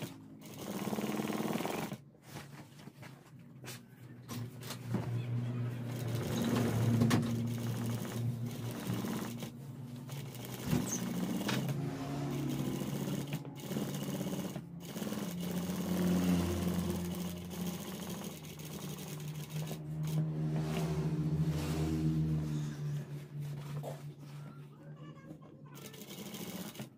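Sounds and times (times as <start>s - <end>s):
sewing machine stitching: 0.0s - 2.0s, 4.6s - 20.9s, 25.7s - 26.9s.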